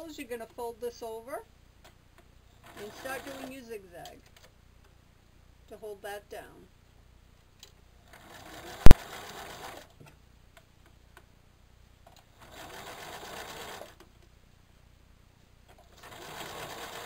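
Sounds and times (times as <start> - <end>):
sewing machine stitching: 2.6 - 3.6, 8.1 - 9.9, 12.4 - 14.0, 15.8 - 17.0.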